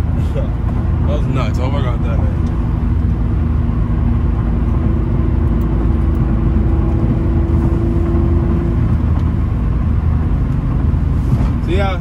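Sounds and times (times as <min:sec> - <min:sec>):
car engine drone from inside cabin: 0:00.0 - 0:12.0.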